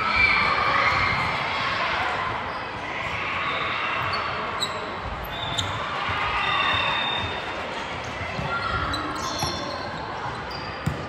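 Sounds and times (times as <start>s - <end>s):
crowd chatter: 0.0s - 11.0s
sneaker squeaks: 3.4s - 11.0s
ball bouncing on court floor: 8.1s - 9.8s, 10.8s - 11.0s.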